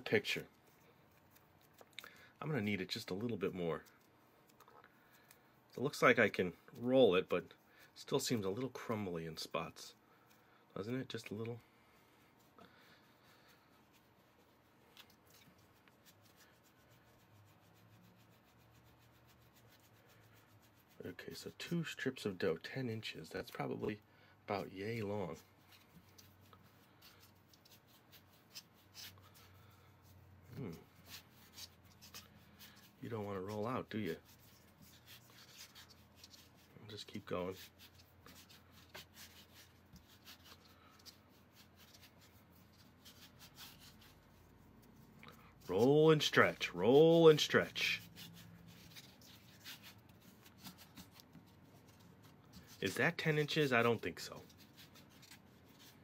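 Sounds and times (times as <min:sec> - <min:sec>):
hands rubbing dough on board: 0:11.0 - 0:22.5, 0:24.5 - 0:56.0.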